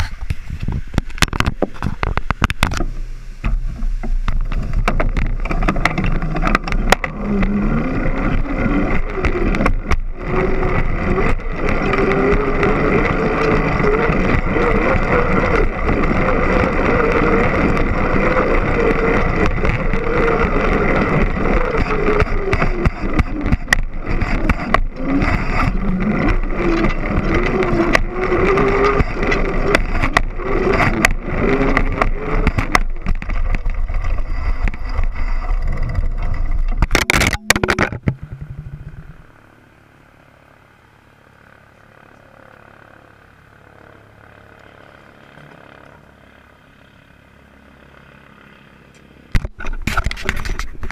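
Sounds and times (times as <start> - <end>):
wind on microphone: 0.0 - 39.3
bicycle tyres humming on pavement: 0.0 - 50.9
bicycle chain and frame rattling: 4.4 - 37.1.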